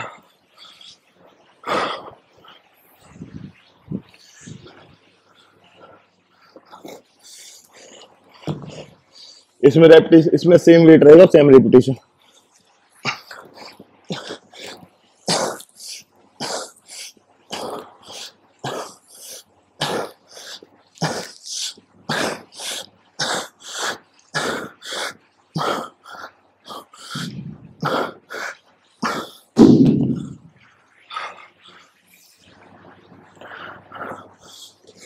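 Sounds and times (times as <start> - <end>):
man breathing hard: 21.5 - 29.5
deep thump: 29.6 - 30.4.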